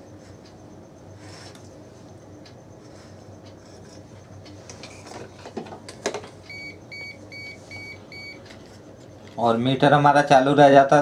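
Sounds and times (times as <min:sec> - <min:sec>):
multimeter short beeps: 0:06.5 - 0:08.4.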